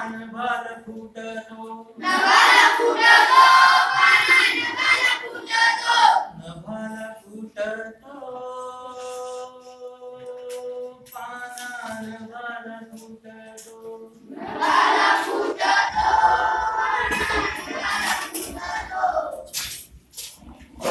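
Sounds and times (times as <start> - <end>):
children singing in unison: 2.0 - 6.4, 14.3 - 19.5.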